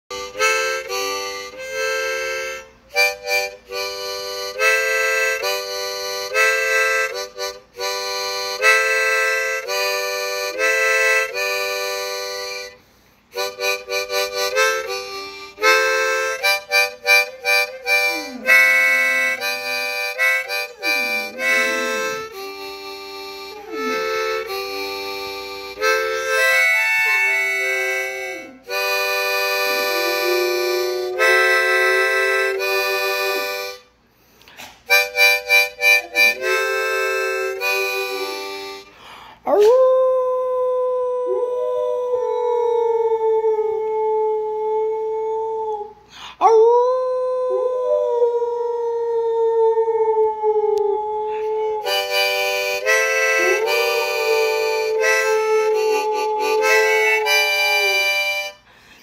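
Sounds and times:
harmonica chords: 0.0s - 39.3s, 51.8s - 59.0s
dog howling: 23.4s - 33.8s, 35.8s - 38.8s, 39.5s - 58.5s.

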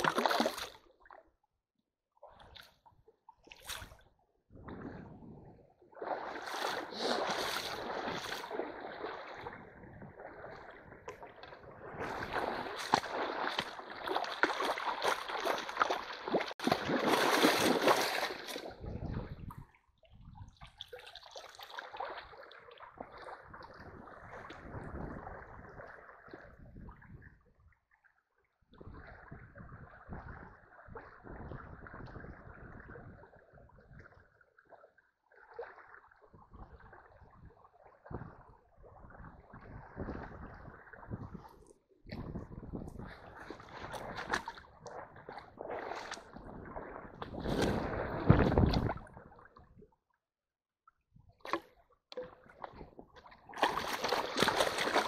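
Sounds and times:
stream water splashing around net: 0.0s - 0.9s, 5.9s - 18.8s, 20.7s - 26.4s, 43.1s - 49.1s, 53.4s - 55.0s.

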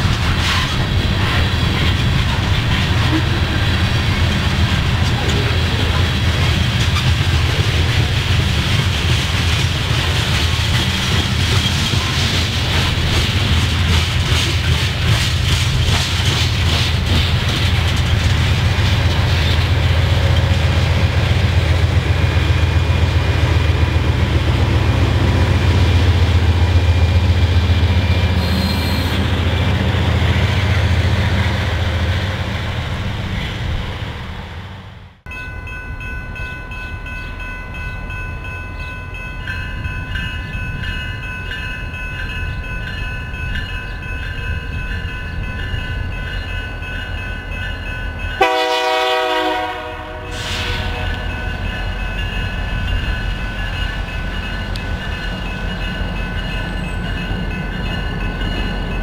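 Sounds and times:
freight train rumbling: 0.0s - 59.0s
crossing bell ringing: 1.4s - 21.8s, 35.3s - 59.0s
train horn blast: 28.4s - 29.4s, 48.4s - 51.7s.

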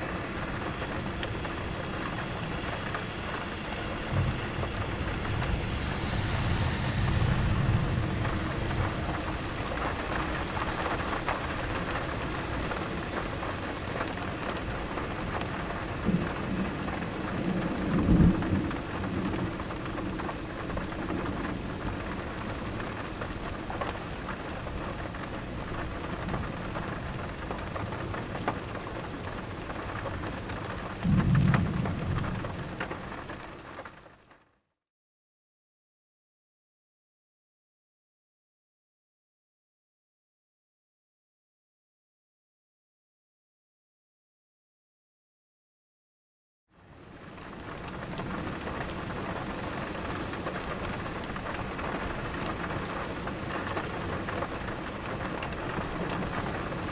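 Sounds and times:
steady rain: 0.0s - 34.7s, 46.8s - 56.9s
thunder rumbling: 0.1s - 24.7s, 29.9s - 33.4s.

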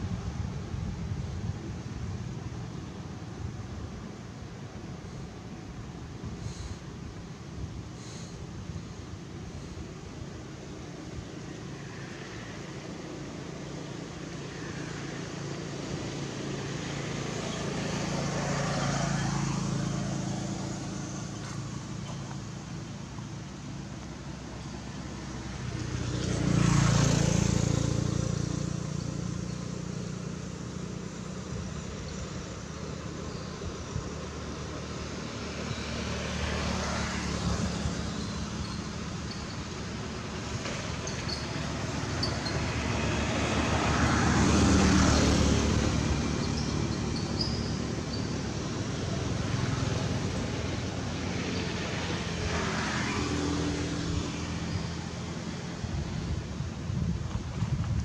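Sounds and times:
vehicle engine passing by: 14.6s - 58.0s.

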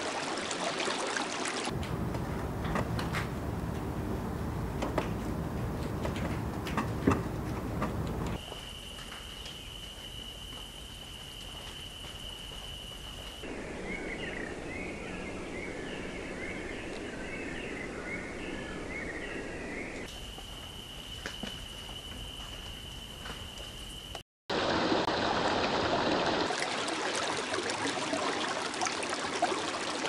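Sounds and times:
rushing background noise: 1.7s - 8.4s
high insect trill: 8.4s - 13.5s, 20.1s - 24.2s.

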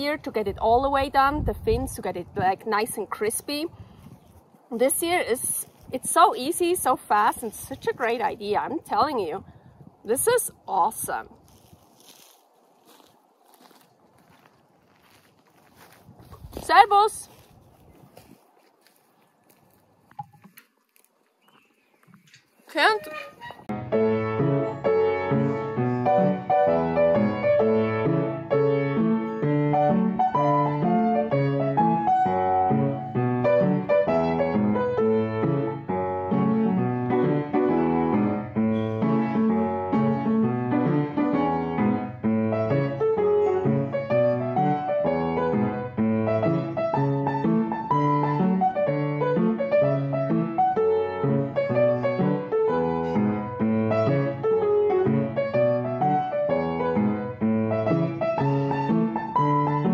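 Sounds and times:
piano music: 23.6s - 59.9s.

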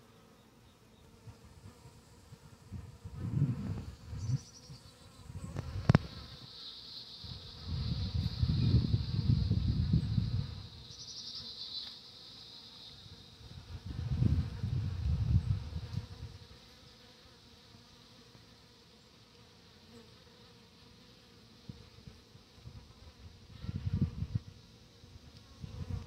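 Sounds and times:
bees buzzing: 0.0s - 26.0s.

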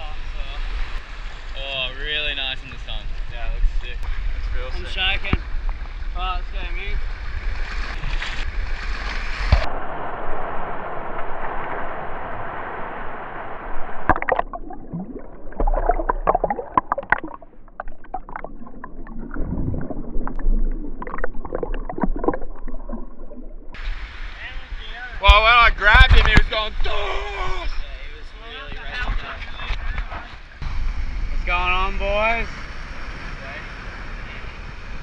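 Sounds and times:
sea water rushing and splashing: 7.1s - 25.2s
bubbles clicking and popping: 14.0s - 23.8s
muffled underwater gurgling: 14.0s - 23.9s.

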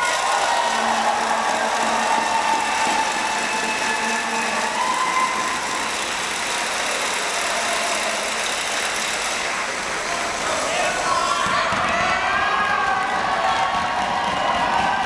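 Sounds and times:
crowd applauding and cheering: 0.0s - 15.0s
long held tone: 0.3s - 6.0s.

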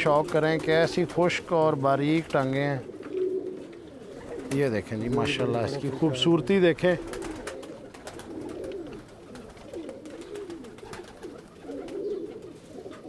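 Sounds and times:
pigeons cooing: 0.0s - 13.0s
faint clicks: 8.6s - 9.0s.

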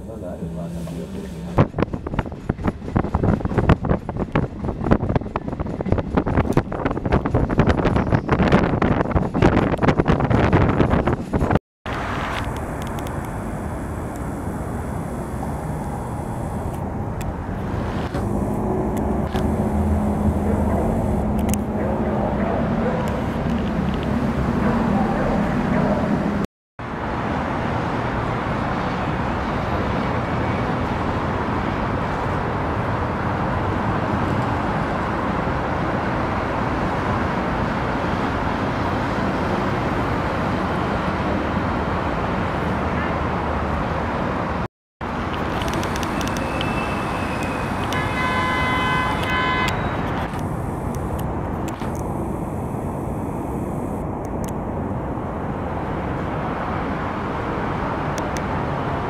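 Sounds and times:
road traffic noise: 0.0s - 59.0s
vehicle horn: 46.1s - 50.4s.

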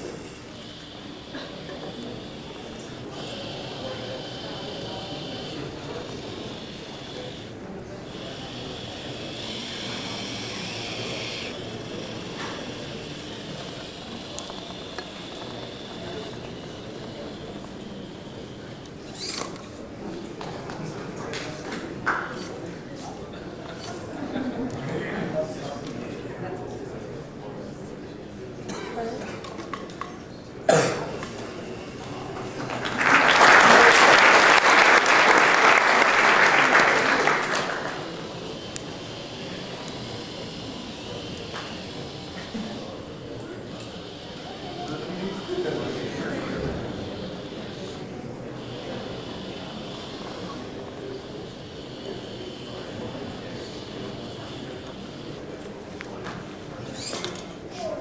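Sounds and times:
electric drive motors whining: 0.0s - 20.0s, 36.8s - 57.4s
steady background noise: 0.0s - 58.0s
audience applause: 32.6s - 38.3s.

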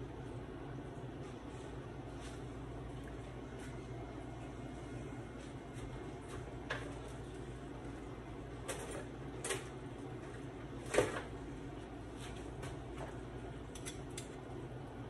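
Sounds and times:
steady low hum: 0.0s - 15.0s
utensils and cookware clinking: 13.7s - 14.4s.

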